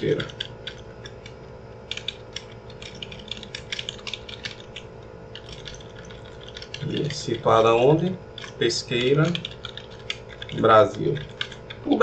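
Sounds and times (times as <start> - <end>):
steady low hum: 0.0 - 12.0
keyboard keystroke clicks: 0.2 - 7.1.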